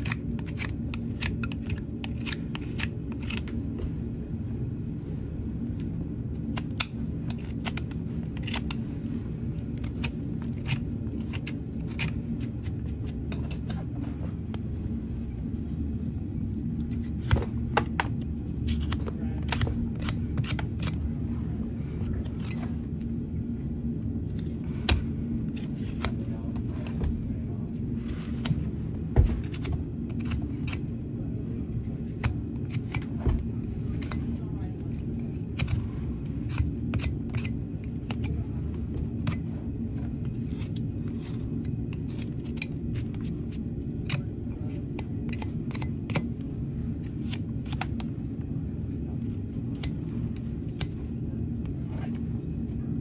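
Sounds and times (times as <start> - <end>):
low background rumble: 0.0 - 53.0
hoof knife scraping hoof: 6.6 - 14.0, 35.1 - 48.0.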